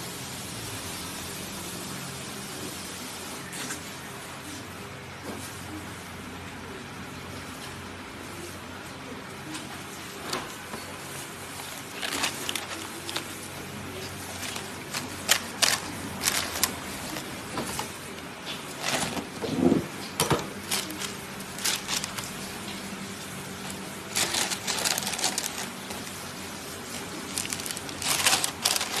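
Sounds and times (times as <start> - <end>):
crisp crepe crackling: 11.0 - 29.0
paper bag rustling: 11.5 - 29.0.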